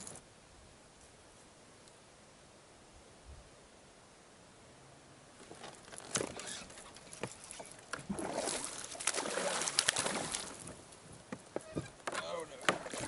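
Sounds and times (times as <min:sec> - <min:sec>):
fish splashing at the surface: 0:08.0 - 0:10.7.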